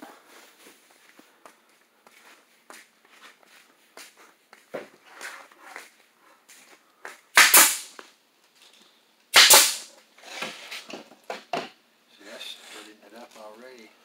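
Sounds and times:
loud sharp bangs: 0:07.4 - 0:08.0, 0:09.4 - 0:09.9.

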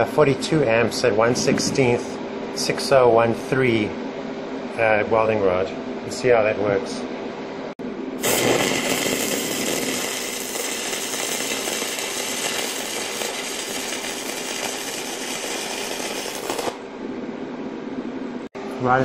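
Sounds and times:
welding arc sizzling: 0:08.2 - 0:16.9.

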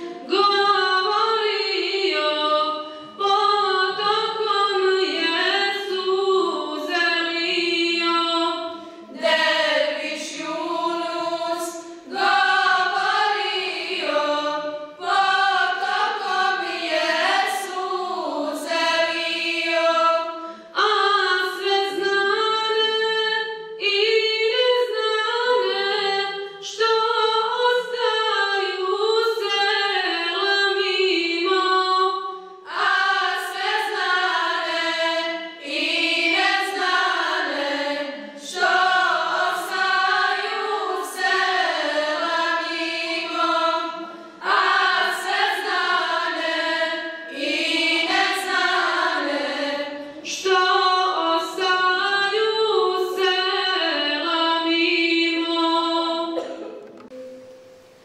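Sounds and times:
choir singing a cappella: 0:00.0 - 0:56.5.

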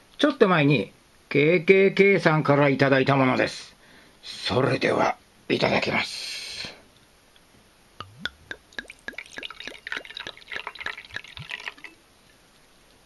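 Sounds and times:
liquid pouring into ceramic cup: 0:08.0 - 0:12.4.

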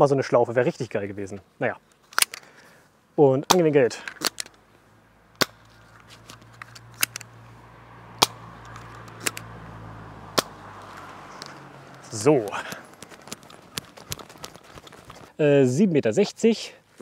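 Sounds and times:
toy dart blaster snapping: 0:05.4 - 0:05.6, 0:08.2 - 0:08.4, 0:10.3 - 0:10.6.

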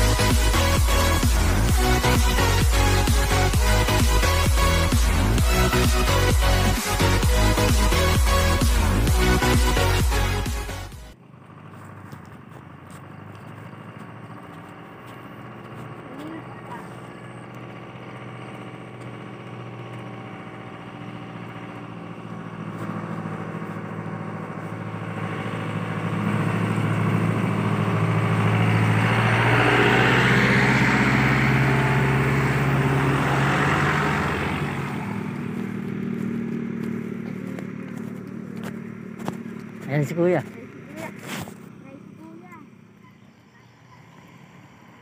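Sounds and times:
vehicle engine passing by: 0:00.0 - 0:45.0.

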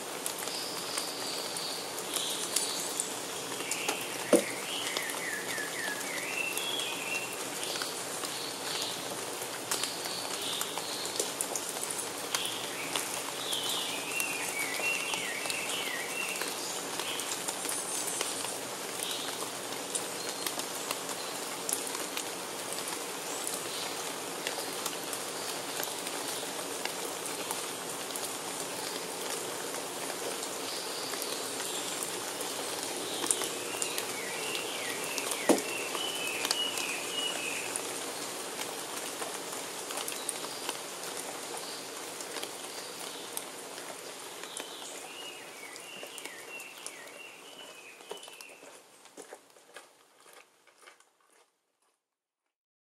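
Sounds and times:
rain falling on foliage: 0:00.0 - 0:51.5
water drips: 0:02.5 - 0:05.9, 0:33.2 - 0:36.9.

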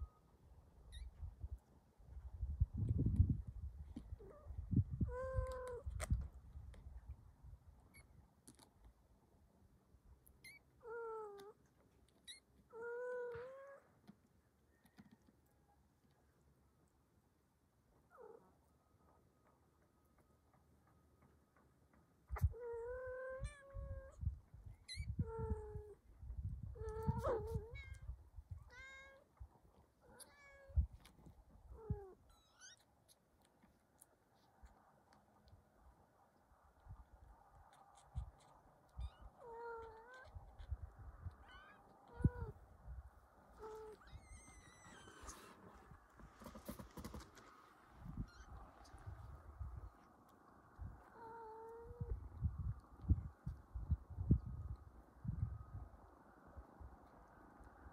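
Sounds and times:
low rumble of movement: 0:34.4 - 0:57.9
kitten mewing: 0:51.1 - 0:52.1.

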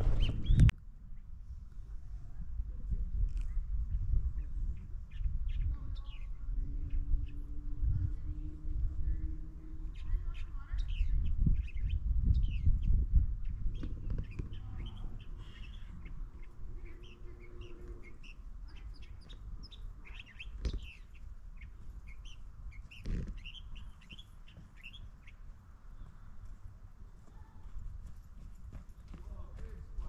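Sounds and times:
low rumble: 0:00.0 - 0:00.7, 0:01.3 - 0:23.0
small birds chirping: 0:00.0 - 0:01.3, 0:03.3 - 0:30.0.

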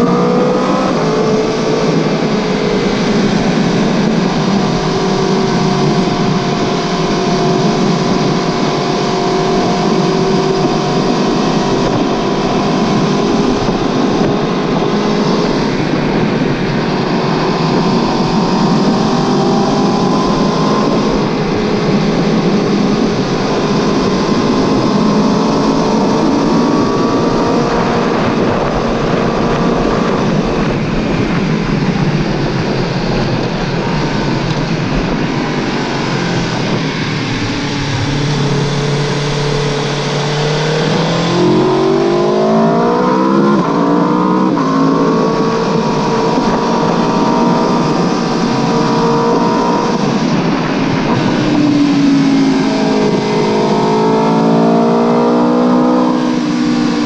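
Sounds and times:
motorcycle engine running: 0:00.0 - 0:57.0
wind noise: 0:00.0 - 0:57.0.

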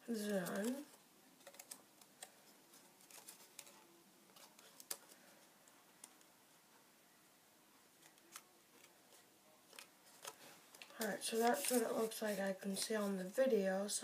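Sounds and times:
paper rustling and crinkling: 0:00.1 - 0:05.4, 0:08.0 - 0:13.3.

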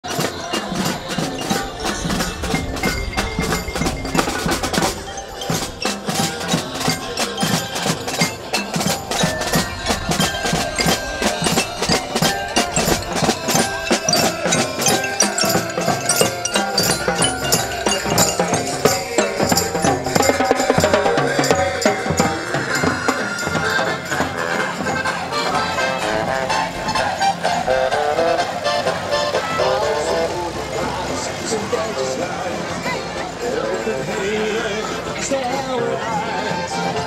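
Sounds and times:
music with percussion beat: 0:00.0 - 0:29.6.

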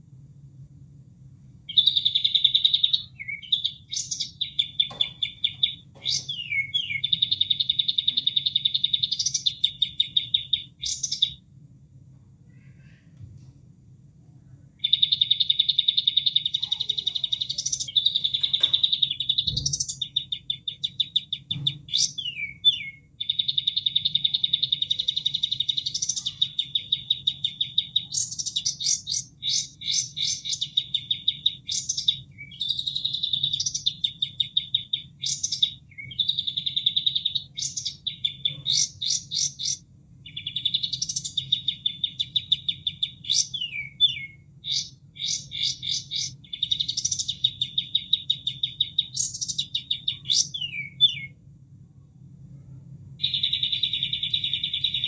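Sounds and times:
recorded birdsong trills and whistles: 0:01.7 - 0:11.4, 0:14.8 - 0:51.4, 0:53.2 - 0:55.0.

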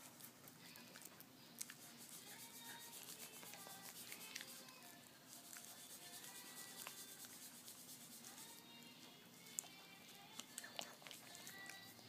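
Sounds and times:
puppy gnawing on chew treat: 0:09.5 - 0:12.0.

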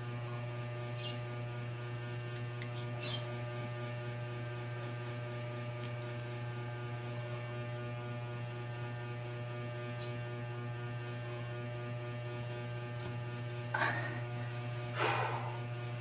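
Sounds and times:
low electrical hum: 0:00.0 - 0:16.0
faint high pulsing tone: 0:06.3 - 0:16.0.

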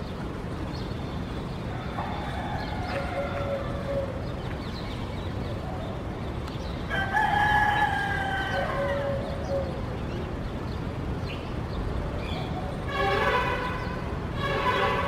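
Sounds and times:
rooster crowing: 0:01.7 - 0:04.2, 0:06.9 - 0:09.8.

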